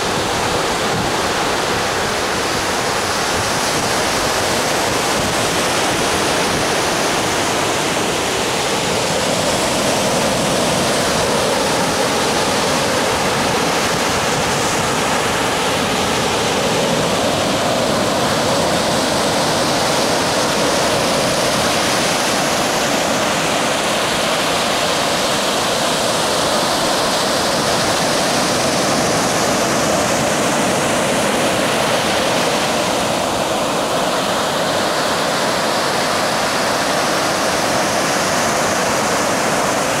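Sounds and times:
small surf breaking on shore: 0.0s - 40.0s.

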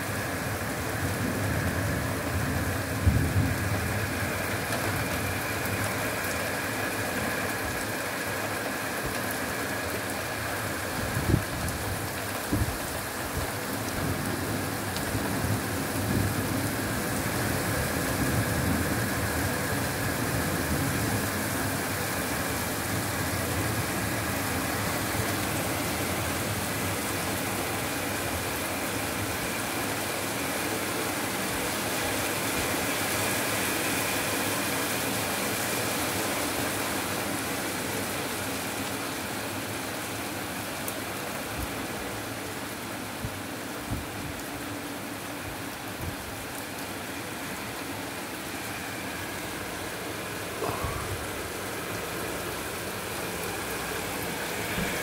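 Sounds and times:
steady rain: 0.0s - 55.0s.

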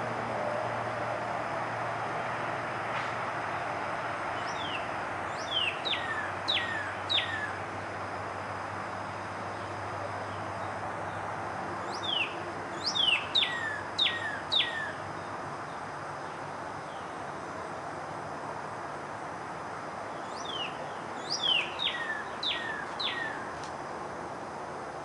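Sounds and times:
bird singing whistles: 5.4s - 7.6s, 11.9s - 15.0s, 20.3s - 23.4s.

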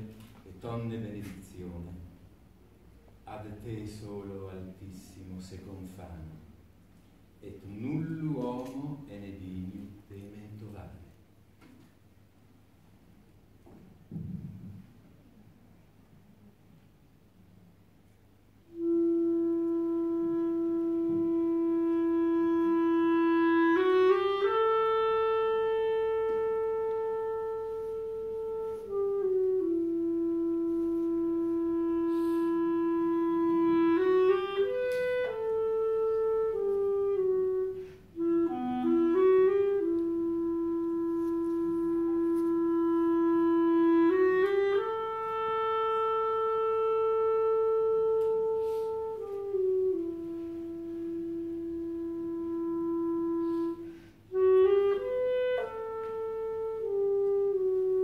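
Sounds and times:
solo clarinet melody: 18.0s - 58.0s.

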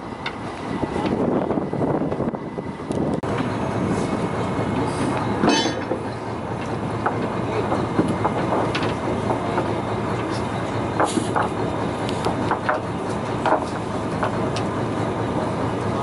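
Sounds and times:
boat engine running: 0.0s - 16.0s.

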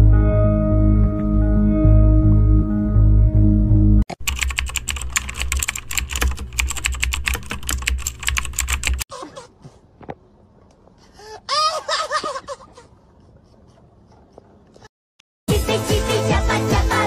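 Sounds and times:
computer keyboard typing: 4.1s - 9.1s.

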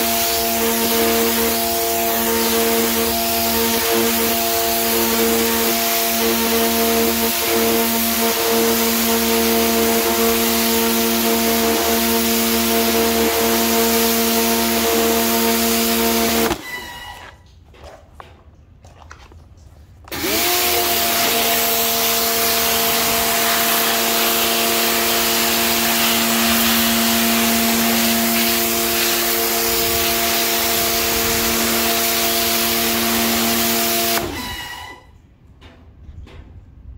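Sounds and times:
water jet hissing on concrete: 0.0s - 16.6s, 20.1s - 35.0s
pressure washer motor hum: 0.0s - 17.4s, 20.0s - 35.1s.

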